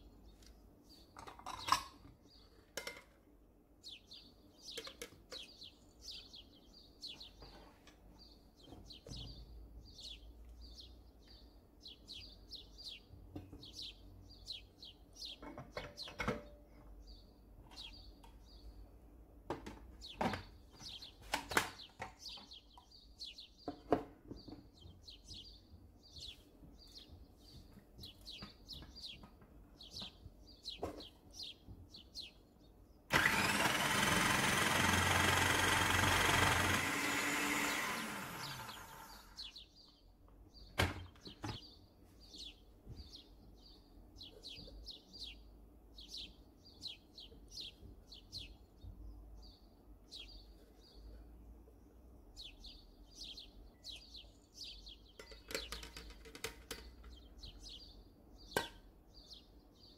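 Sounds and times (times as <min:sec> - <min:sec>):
plastic parts and dishes knocking: 0:01.2 - 0:02.1, 0:02.7 - 0:03.2, 0:15.4 - 0:16.6, 0:55.2 - 0:57.2
small bird chirping: 0:03.8 - 0:16.2, 0:16.8 - 0:18.9, 0:20.0 - 0:33.5, 0:37.5 - 0:51.3, 0:52.3 - 0:59.9.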